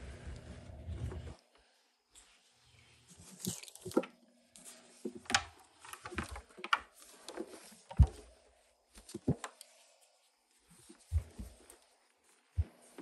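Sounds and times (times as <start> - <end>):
rustles clicks and knocks: 5.0 - 8.4.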